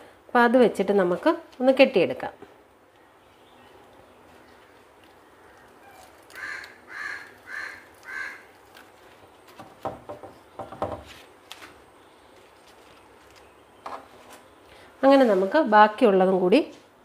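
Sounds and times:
leaf parcel crackling and rustling: 3.8s - 9.9s, 11.1s - 15.8s
bird calling: 4.4s - 8.6s.

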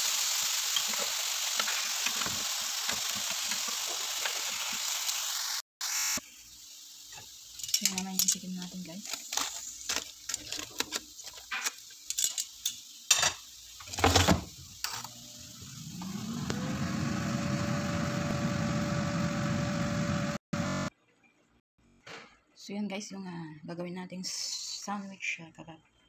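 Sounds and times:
air fryer fan humming: 15.1s - 20.9s.

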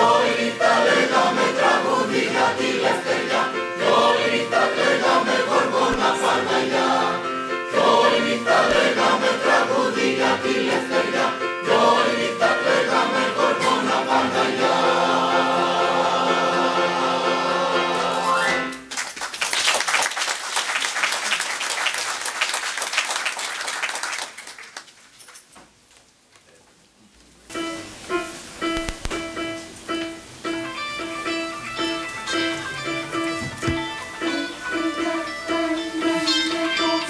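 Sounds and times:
choir singing: 0.0s - 18.7s, 32.4s - 37.0s
audience applause: 18.8s - 25.2s
electronic keyboard: 27.5s - 37.0s.

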